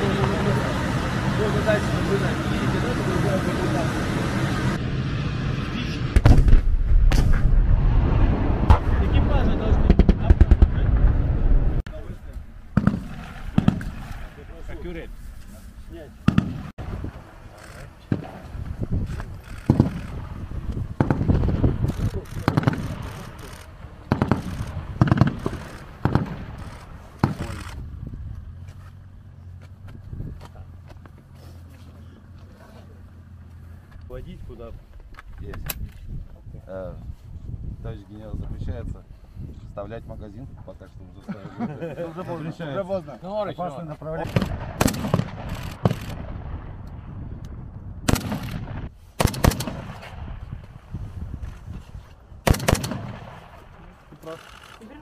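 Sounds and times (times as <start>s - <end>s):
low steady rumble: 0.0s - 17.5s
steady low rumble: 0.0s - 35.2s, 44.0s - 54.2s
gunfire bangs: 6.1s - 9.2s, 9.8s - 11.3s, 12.8s - 14.3s, 16.2s - 16.7s, 19.7s - 20.2s, 22.4s - 23.3s, 24.1s - 27.7s, 44.2s - 46.6s, 48.0s - 50.4s, 52.4s - 53.6s
rifle shots: 12.8s - 14.3s, 16.2s - 16.7s, 19.7s - 20.2s, 22.4s - 23.4s, 24.1s - 27.8s, 44.2s - 46.6s, 48.0s - 50.3s, 52.4s - 53.6s.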